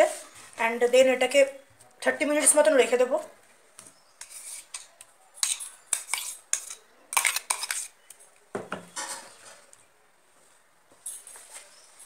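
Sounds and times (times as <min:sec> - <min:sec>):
spoon scraping metal jar: 0:04.2 - 0:08.0.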